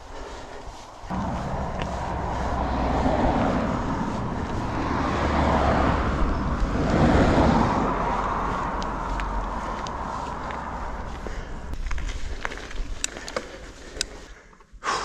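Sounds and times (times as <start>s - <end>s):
cars passing: 0.0s - 11.8s
wind rumble on microphone: 0.0s - 13.1s.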